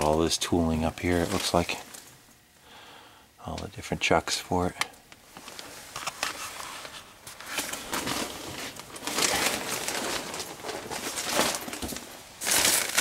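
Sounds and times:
rustling and handling noise: 0.0 - 2.4, 5.1 - 13.0.

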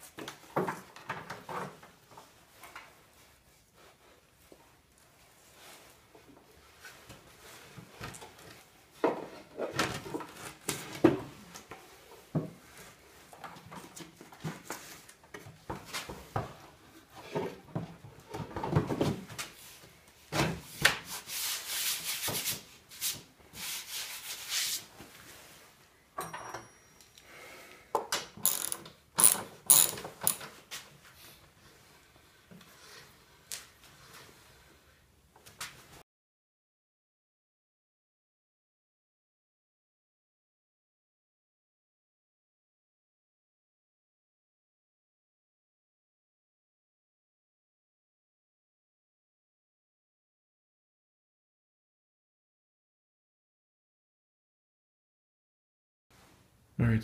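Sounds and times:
wooden knocks and scraping: 28.4 - 30.5
ratchet wrench clicking: 28.5 - 30.4.

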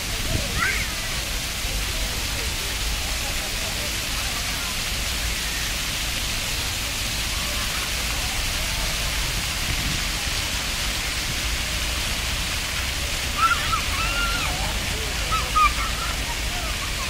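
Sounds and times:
fountain water jets splashing: 0.0 - 17.0
child calling out: 13.4 - 17.0.

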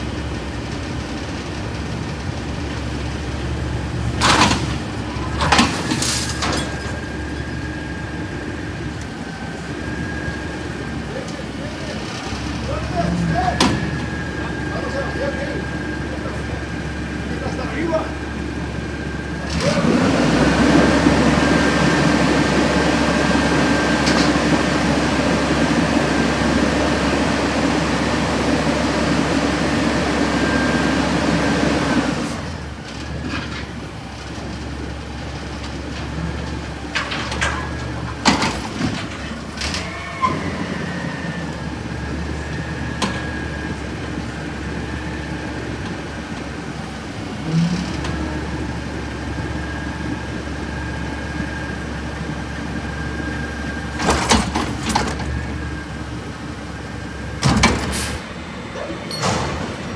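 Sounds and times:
garbage truck engine: 0.0 - 59.9
high hydraulic whine: 2.6 - 33.7, 36.6 - 59.9
metal clanks of dumpster: 4.2 - 7.1, 54.0 - 55.4, 57.4 - 59.9.

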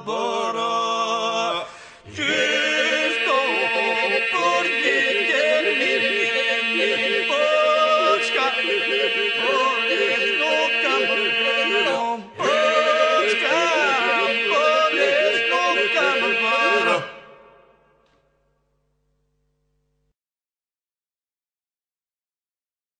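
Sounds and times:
voices singing ornamented melody: 0.0 - 17.7.

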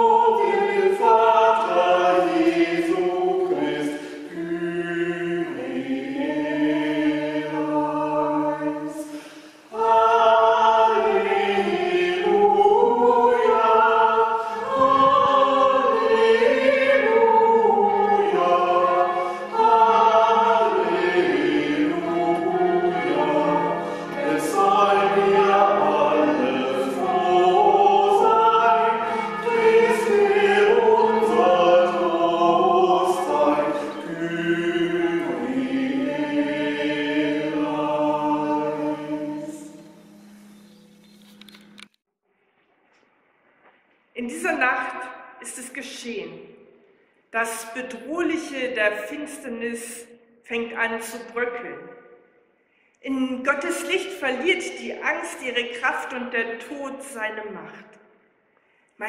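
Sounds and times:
choir singing slowly: 0.0 - 41.8.

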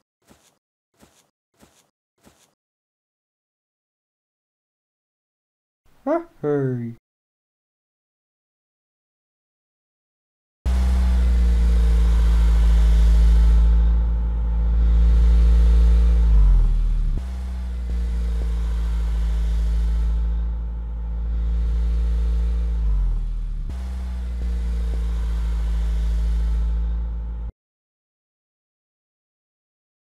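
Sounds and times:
truck engine running: 10.7 - 27.5.

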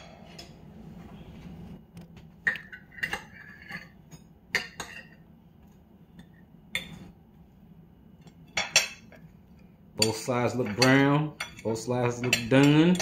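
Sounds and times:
dishes and cutlery clinking: 0.0 - 0.6, 2.4 - 7.1, 8.2 - 9.3, 10.0 - 13.0.

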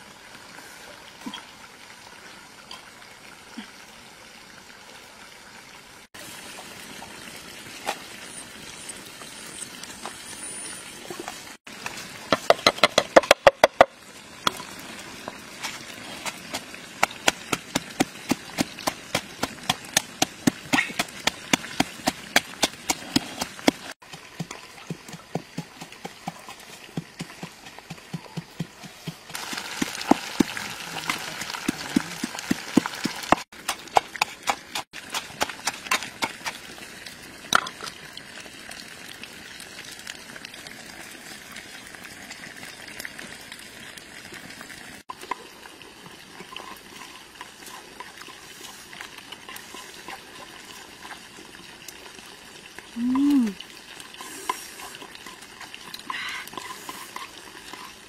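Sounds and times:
pestle pounding in a mortar: 12.4 - 13.9, 16.5 - 36.6.

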